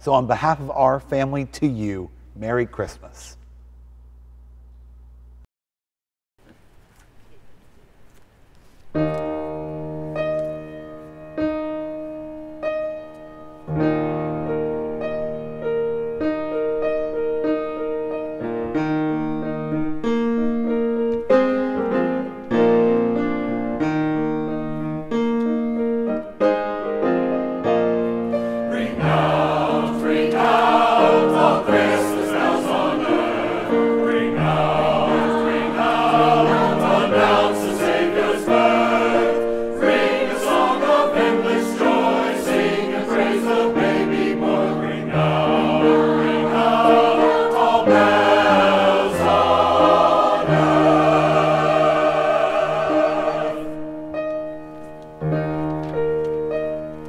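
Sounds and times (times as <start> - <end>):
grand piano playing: 8.9 - 57.0
choir singing: 28.6 - 54.0.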